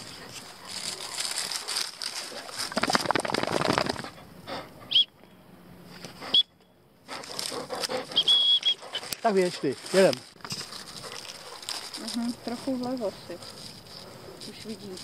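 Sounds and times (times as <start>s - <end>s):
dry stubble rustling: 0.0s - 4.2s, 8.8s - 15.0s.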